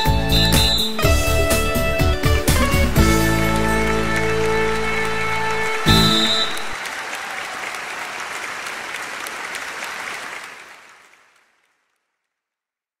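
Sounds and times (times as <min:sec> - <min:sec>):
people clapping: 0:02.5 - 0:12.5.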